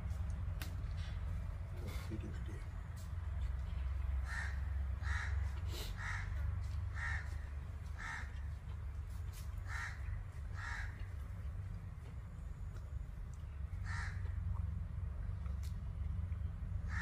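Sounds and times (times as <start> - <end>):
crow cawing: 4.2 - 8.5, 9.6 - 11.1, 13.8 - 14.4.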